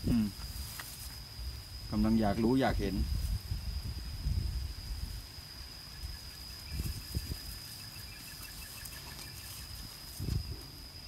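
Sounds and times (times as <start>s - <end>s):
high insect whine: 0.0s - 11.0s
puppies scuffling in grass: 0.4s - 11.0s
faint rapid chirping: 5.0s - 11.0s.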